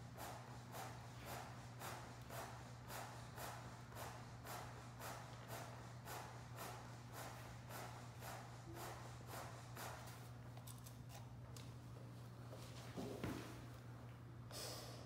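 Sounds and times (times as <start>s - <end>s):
manikin chest compressions: 0.0s - 10.2s.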